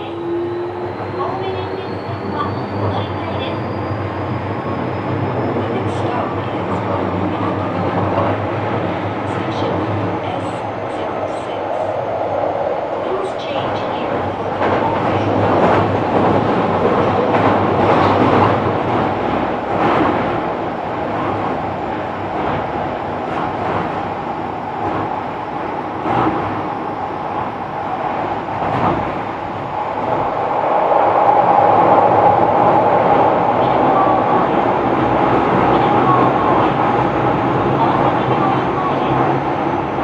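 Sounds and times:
train wheels rumbling on rail: 0:00.0 - 0:40.0.

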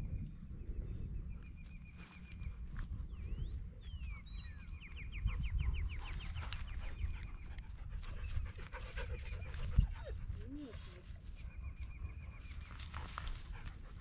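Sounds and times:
dog panting: 0:05.7 - 0:11.0.

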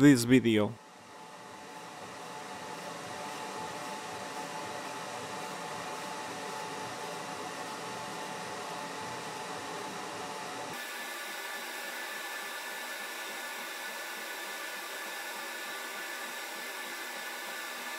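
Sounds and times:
laser engraver fan whoosh: 0:01.0 - 0:17.9.

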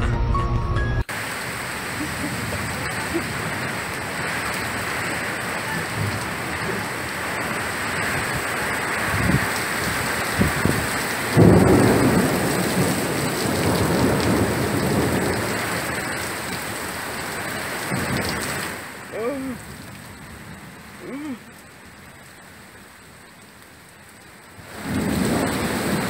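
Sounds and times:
thunder rumbling: 0:01.1 - 0:16.8, 0:24.7 - 0:26.0
heavy rain: 0:01.1 - 0:26.0.

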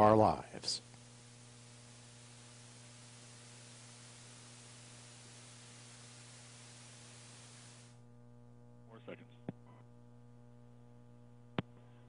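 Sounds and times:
faint steady hiss: 0:00.0 - 0:08.0
low electrical hum: 0:00.0 - 0:12.0.

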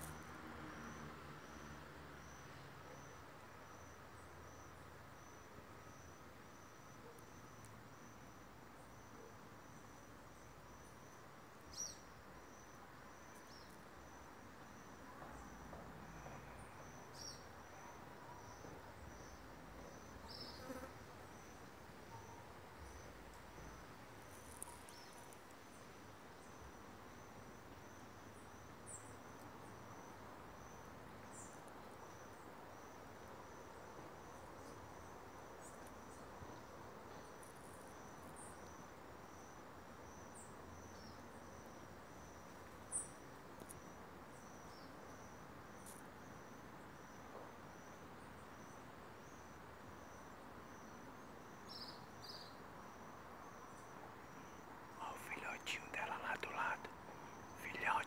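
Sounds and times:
insect chirping pulse: 0:48.6 - 0:57.9.

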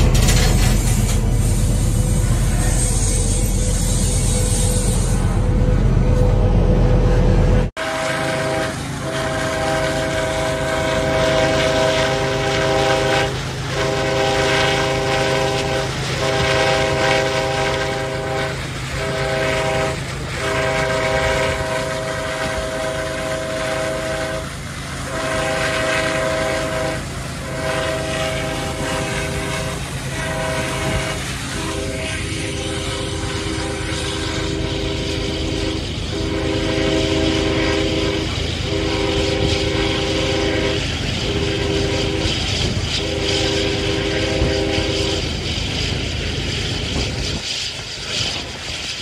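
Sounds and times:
locomotive air horn blasts: 0:07.7 - 0:45.4.

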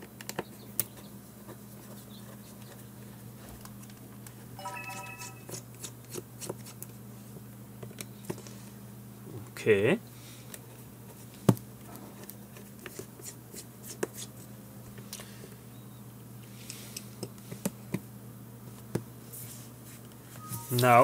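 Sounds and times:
low steady hum: 0:19.6 - 0:21.0.

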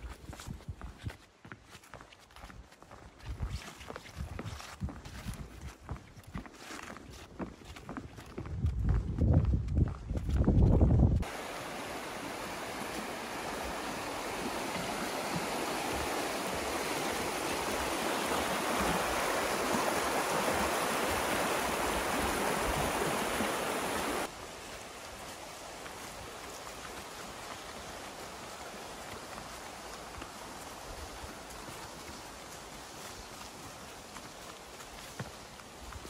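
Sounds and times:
footsteps on wooden boardwalk: 0:00.0 - 0:11.3, 0:12.5 - 0:36.0
rocky river rushing: 0:11.2 - 0:36.0.

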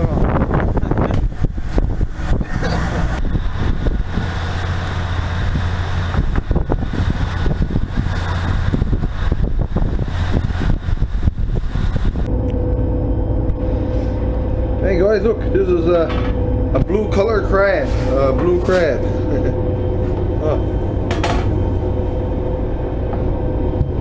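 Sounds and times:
boat engine droning: 0:00.0 - 0:24.0
sea noise: 0:00.0 - 0:24.0
wind: 0:00.0 - 0:24.0
knocks and clatter: 0:21.0 - 0:21.6.

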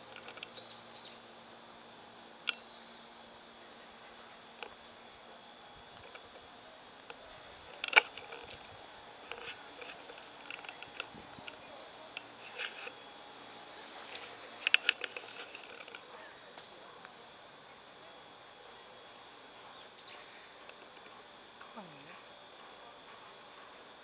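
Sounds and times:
faint hiss: 0:00.0 - 0:24.0
sharp clicks: 0:02.4 - 0:02.6.

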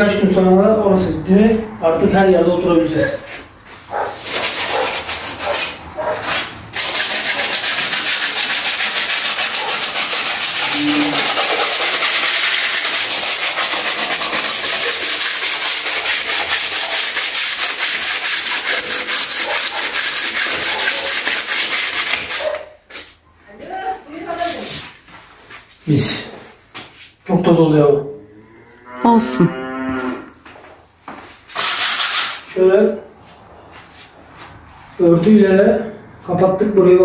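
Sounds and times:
hand sanding plastered wall: 0:03.0 - 0:23.2, 0:24.1 - 0:27.2, 0:31.0 - 0:32.6.

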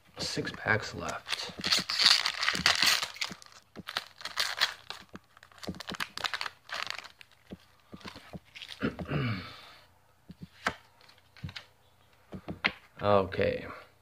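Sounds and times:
foil wrapper tearing and crinkling: 0:01.1 - 0:07.5.

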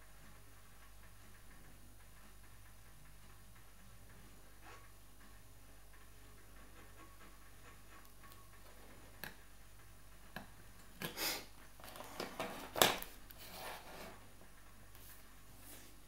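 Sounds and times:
scraping and rustling: 0:11.8 - 0:14.4.

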